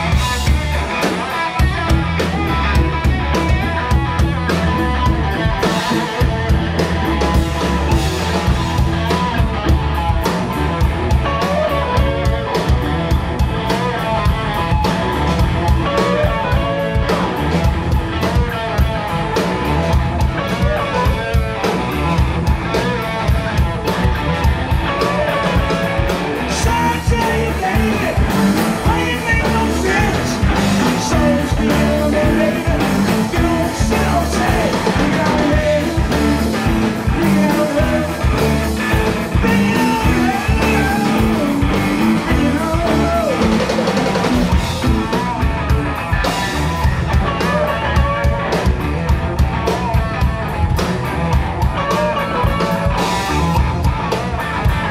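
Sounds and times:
bass guitar: 0.0s - 54.9s
drum kit: 0.0s - 54.9s
electric guitars: 0.0s - 54.9s
person singing: 26.4s - 44.2s.

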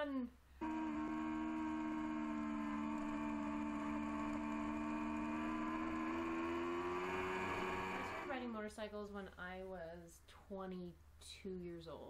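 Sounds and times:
motorcycle engine running: 0.6s - 8.6s.

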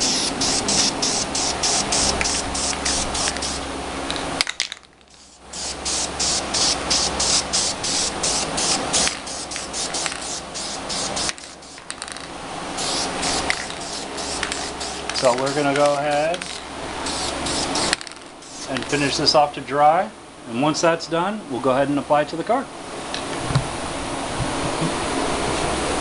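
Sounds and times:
spray paint can bursts: 0.0s - 19.1s.

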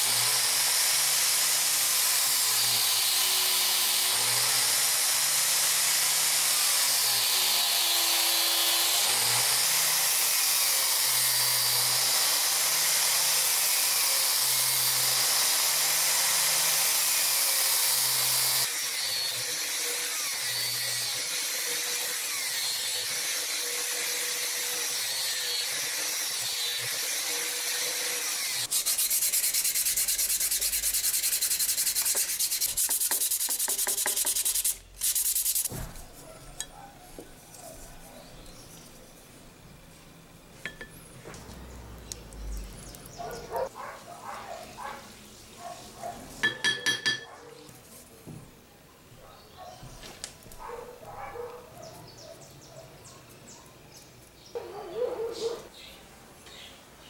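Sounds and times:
sanding disc hissing on wood: 0.0s - 36.2s
hand sanding strokes: 25.0s - 36.4s.

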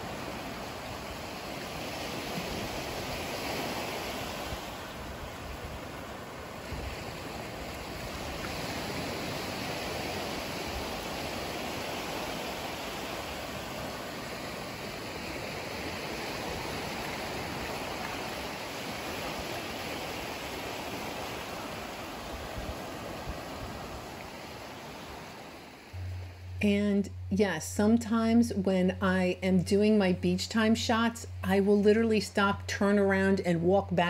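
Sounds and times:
surf washing onto sand: 0.0s - 26.2s.

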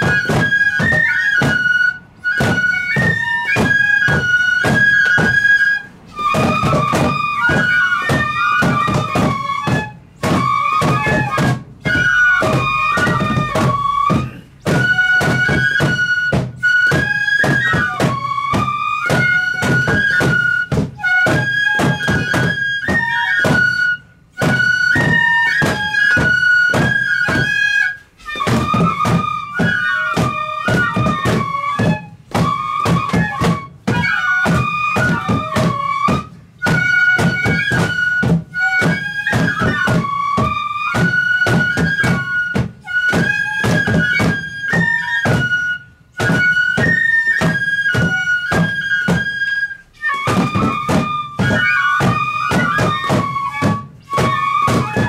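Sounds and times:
bamboo flute melody: 0.0s - 55.0s
quick drum strokes: 0.0s - 55.0s.

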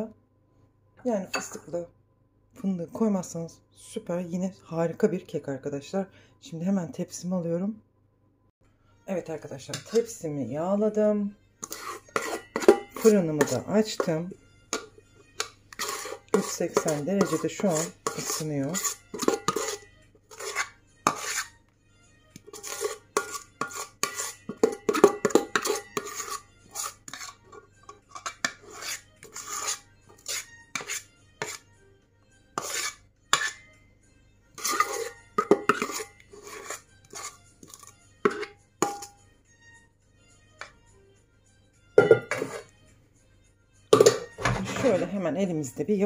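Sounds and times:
utensil scraping mixing bowl: 9.6s - 10.2s, 11.6s - 21.6s, 22.4s - 31.7s, 32.6s - 33.7s, 34.5s - 39.1s, 42.0s - 42.7s, 44.0s - 45.4s.

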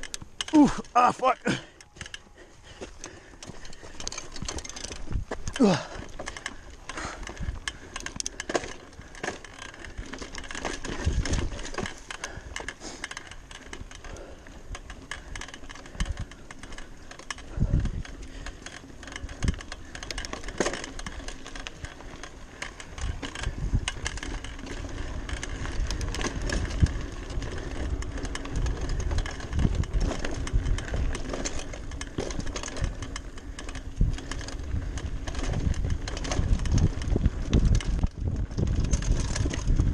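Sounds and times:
bike tyres rolling on dirt: 0.0s - 39.9s
chain rattling and clicking: 3.0s - 39.9s.

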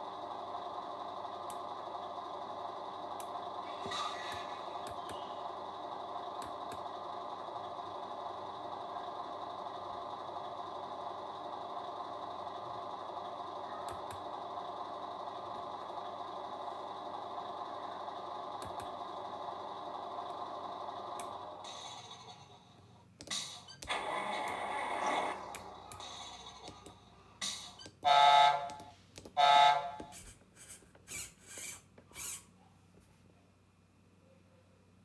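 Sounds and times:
simulated truck engine idle: 0.0s - 32.6s.

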